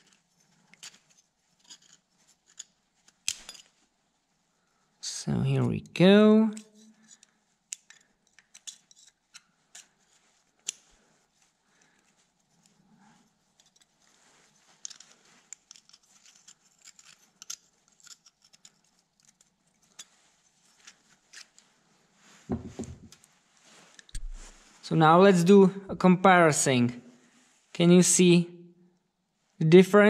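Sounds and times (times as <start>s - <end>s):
metallic clicks and scrapes: 0.0s - 3.8s, 6.5s - 11.0s, 12.0s - 21.8s.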